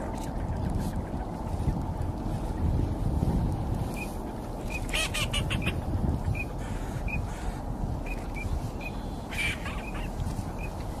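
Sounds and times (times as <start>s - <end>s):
ducks peeping: 0.0s - 11.0s
wind rumble on microphone: 0.0s - 11.0s.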